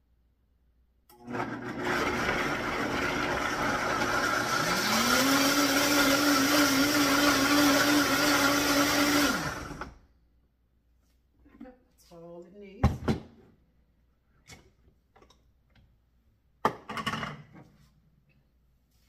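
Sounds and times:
blender motor running: 1.2s - 10.0s.

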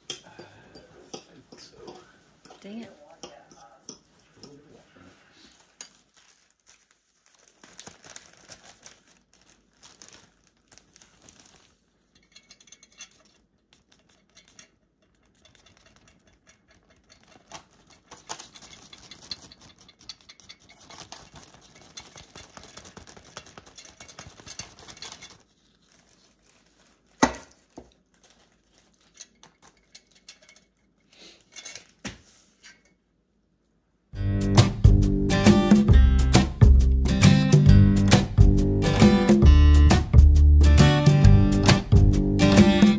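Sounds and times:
plastic bag rustle: 4.2s - 12.4s, 15.4s - 30.2s
flour sifter rasping: 12.4s - 30.4s.

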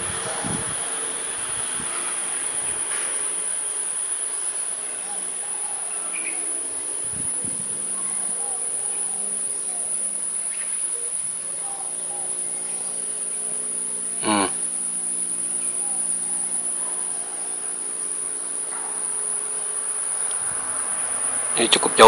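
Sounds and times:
insects shrilling: 0.0s - 22.0s
short pitched call: 14.2s - 14.6s.

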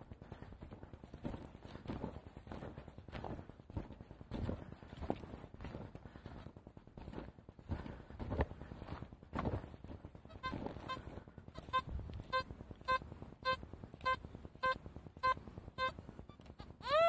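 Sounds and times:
metal detector beeps: 10.3s - 11.0s, 11.6s - 17.0s.

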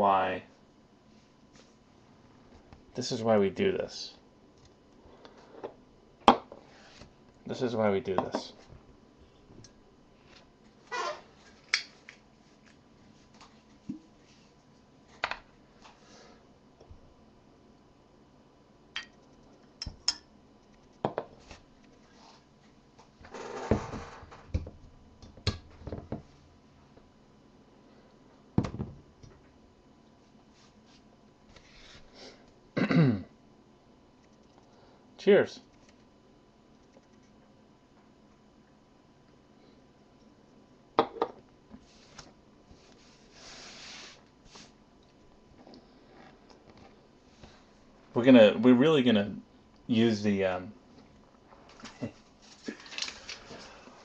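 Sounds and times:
rustling scrape: 42.8s - 44.8s
soft breathy hiss: 42.8s - 44.8s.

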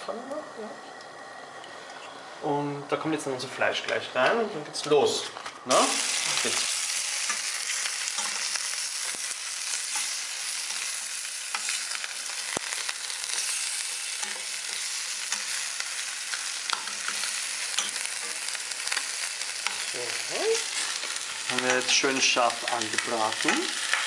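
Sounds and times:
meat and prawns sizzling in pan: 5.7s - 24.0s.

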